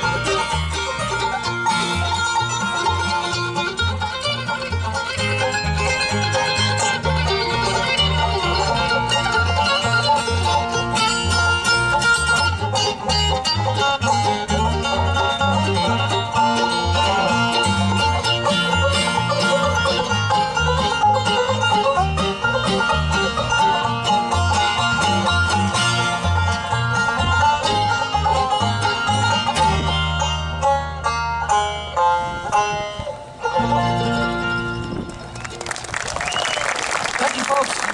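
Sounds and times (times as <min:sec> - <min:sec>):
banjo: 0:00.0 - 0:36.2
mandolin: 0:00.0 - 0:36.5
acoustic guitar: 0:00.0 - 0:36.6
upright bass: 0:00.0 - 0:37.9.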